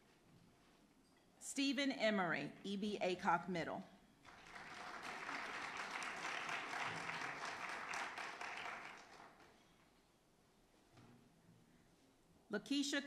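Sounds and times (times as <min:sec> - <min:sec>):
audience applauding: 0:04.3 - 0:09.5.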